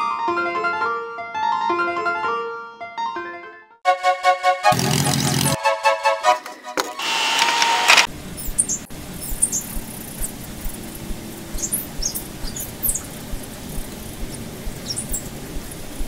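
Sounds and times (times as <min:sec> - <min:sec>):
steady low rumble: 0:08.1 - 0:16.0
high-pitched chirps and squeaks: 0:08.4 - 0:10.3, 0:11.6 - 0:13.2, 0:13.8 - 0:15.3.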